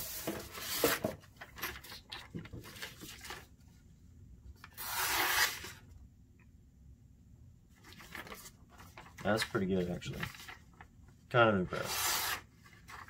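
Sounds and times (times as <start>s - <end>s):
paper rustling: 0.0s - 3.7s, 7.8s - 10.9s, 11.8s - 13.0s
blade slicing paper: 4.8s - 5.8s, 11.8s - 12.5s.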